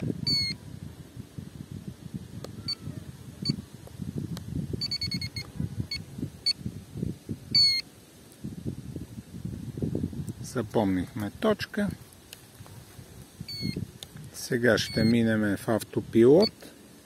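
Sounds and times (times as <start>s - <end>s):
remote handset beeps: 4.8s - 6.6s, 13.5s - 13.8s, 14.8s - 15.1s.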